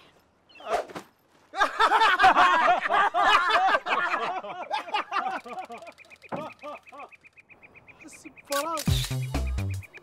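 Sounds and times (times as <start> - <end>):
men laughing loudly: 1.5 - 7.2
faint fast ticking: 5.3 - 7.5.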